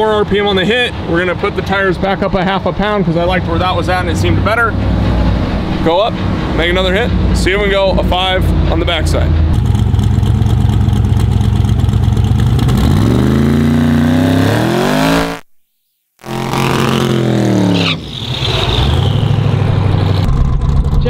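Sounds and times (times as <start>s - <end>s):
engine revving hard: 12.4s - 15.4s, 16.2s - 20.4s.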